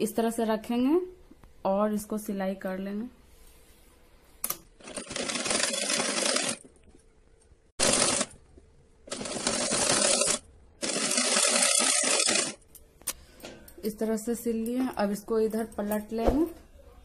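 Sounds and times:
sewing machine stitching: 4.8s - 6.7s, 7.8s - 8.4s, 9.1s - 12.6s.

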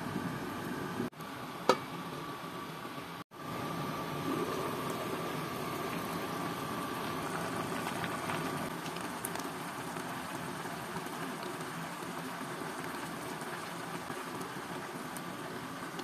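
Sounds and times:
stew bubbling in a pan: 3.3s - 16.0s.

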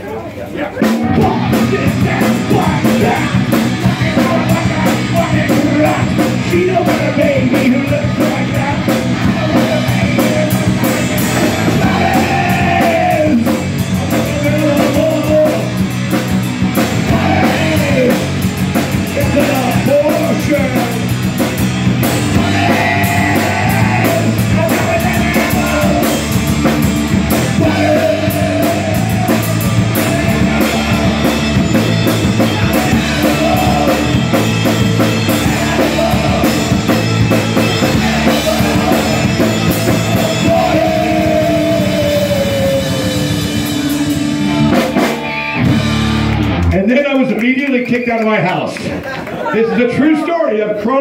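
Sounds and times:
punk rock band playing live: 0.0s - 47.8s.

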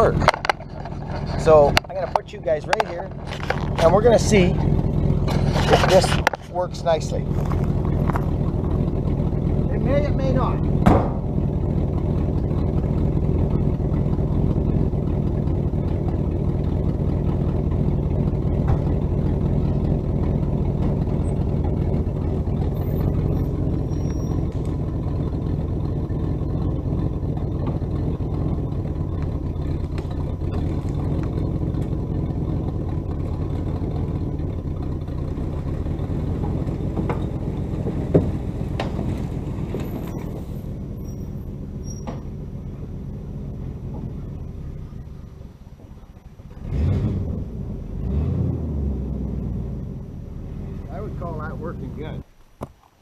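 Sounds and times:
pickup truck engine running: 0.0s - 53.0s
brush dragging: 5.3s - 6.6s
sharp knock: 10.8s - 11.3s.

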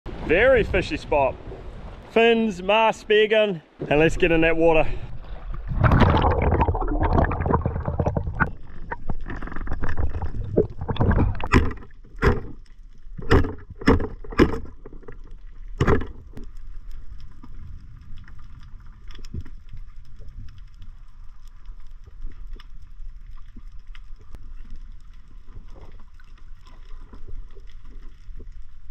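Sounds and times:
rush of water and bubbles: 3.7s - 28.9s
short loud water gushes: 3.8s - 11.8s.

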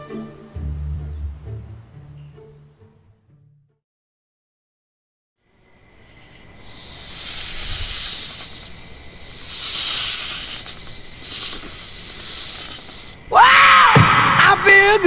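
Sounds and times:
night insects chirring: 5.4s - 15.0s
hissing: 6.6s - 15.0s.

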